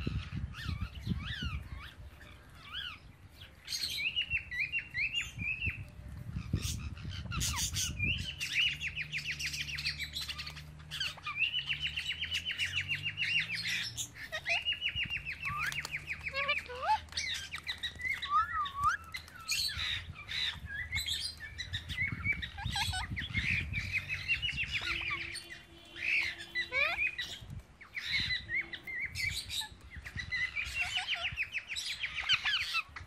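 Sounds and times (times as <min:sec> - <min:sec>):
parakeets chirping and chattering: 0:00.0 - 0:33.0
parakeet squawks: 0:22.3 - 0:27.4.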